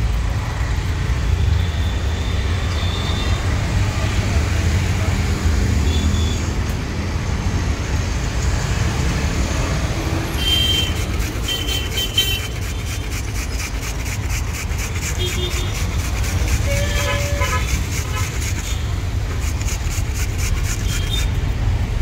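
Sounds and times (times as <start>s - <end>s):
traffic rumble: 0.0s - 22.0s
grating on metal grater: 9.3s - 21.6s.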